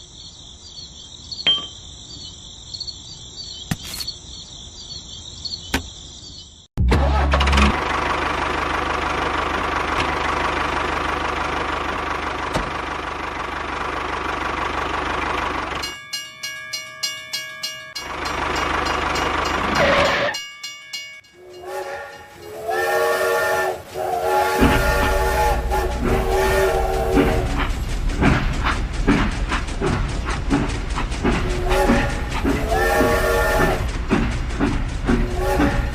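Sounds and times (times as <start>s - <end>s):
toy steam train whistle: 21.4s - 27.7s, 31.6s - 33.9s, 35.2s - 35.9s.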